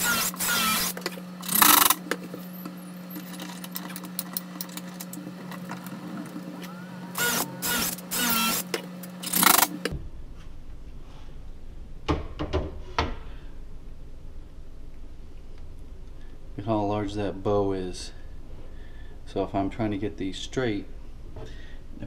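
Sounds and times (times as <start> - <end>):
cordless drill driving screws: 0.0 - 2.0, 7.1 - 9.7
tools and clamps rattling: 0.0 - 5.7, 8.5 - 9.8.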